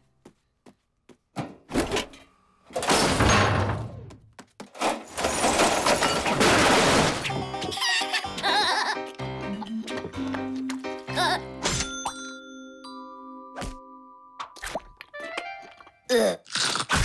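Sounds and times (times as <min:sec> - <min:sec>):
crashing shattering noise: 0:04.9 - 0:07.3
background music: 0:07.1 - 0:16.1.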